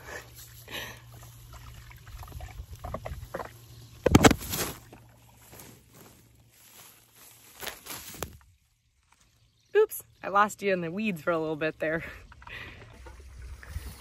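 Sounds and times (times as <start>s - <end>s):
grass rustling against microphone: 0.3s - 9.6s.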